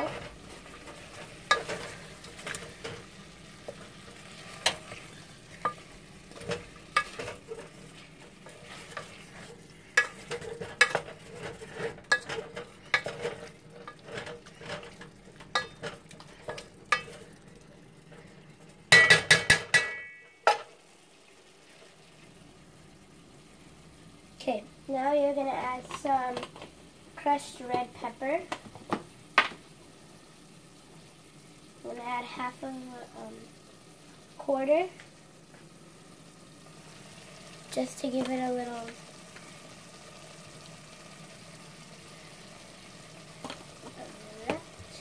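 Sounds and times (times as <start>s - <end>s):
wooden spoon scraping a metal pot: 0.0s - 17.4s
faint frying sizzle: 0.0s - 45.0s.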